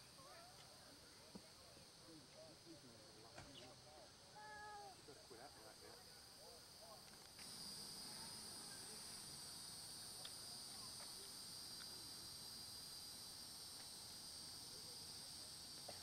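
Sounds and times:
insect chorus: 0.0 - 16.0.

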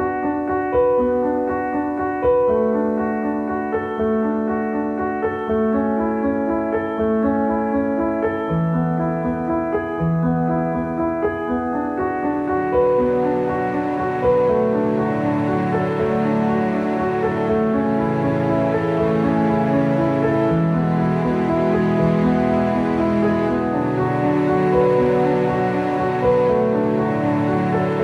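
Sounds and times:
soft piano chords: 0.0 - 28.0.

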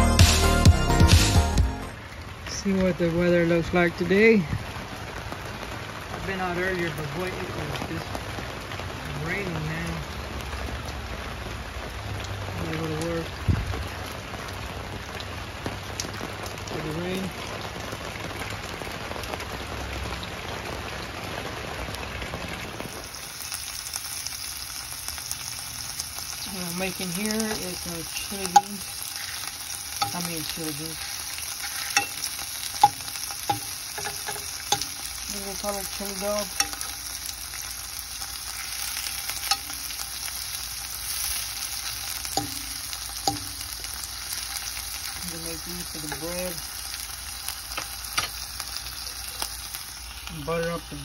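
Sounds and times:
steady rain falling: 0.0 - 51.0
food sizzling in a pan: 22.6 - 51.0
fork knocking against pan: 32.8 - 34.9.

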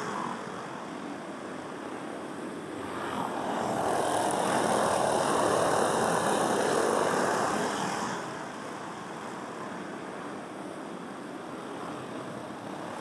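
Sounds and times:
go-kart engines at full throttle: 2.8 - 8.5.

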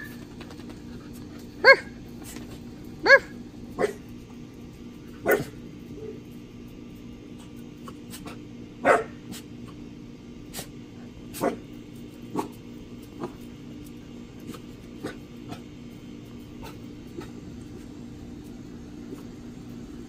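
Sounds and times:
puppies barking: 1.6 - 2.0, 3.0 - 4.1, 8.8 - 9.3.

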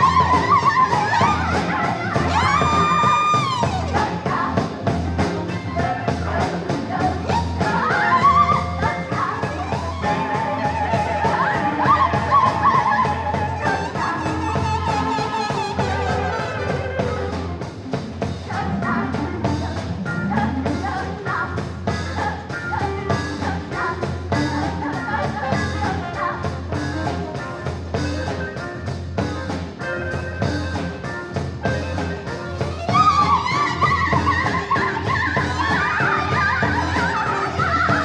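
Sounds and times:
person singing: 0.0 - 17.6, 31.7 - 38.0
live rock band playing: 0.0 - 38.0.

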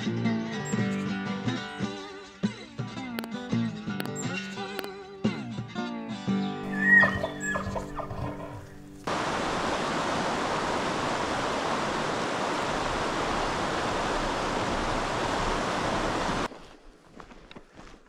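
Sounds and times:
creek rushing over rocks: 6.7 - 16.5.

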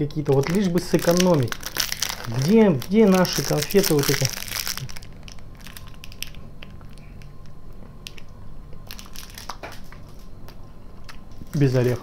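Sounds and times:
wrapper crinkling: 0.1 - 10.3
chewing candy: 0.3 - 9.8.

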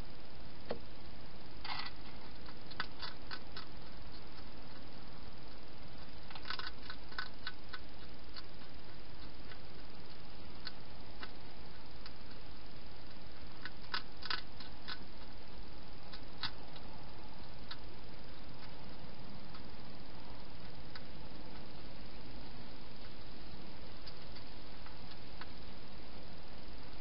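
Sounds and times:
steady hiss: 0.0 - 27.0
hedgehog chewing clicks: 1.7 - 4.9, 5.5 - 15.4, 16.0 - 19.7, 24.0 - 25.6.

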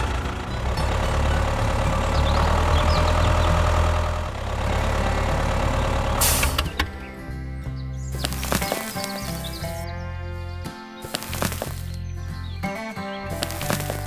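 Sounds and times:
tractor engine idling: 0.0 - 14.0
short hiss: 6.2 - 6.7.

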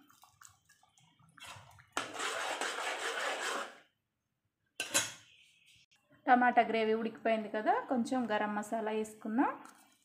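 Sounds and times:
rasping scrape in a pan: 2.0 - 3.8.

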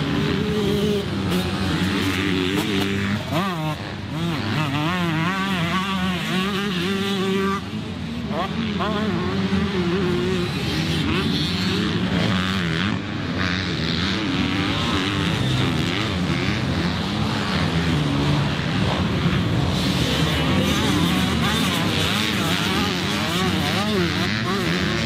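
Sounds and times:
two-stroke motorcycle engine revving: 0.0 - 25.0.

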